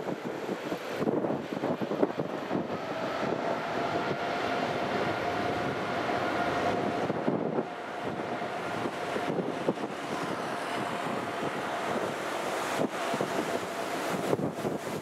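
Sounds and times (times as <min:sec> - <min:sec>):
jet engines at takeoff thrust: 0:00.0 - 0:15.0
wind buffeting microphone: 0:00.0 - 0:15.0.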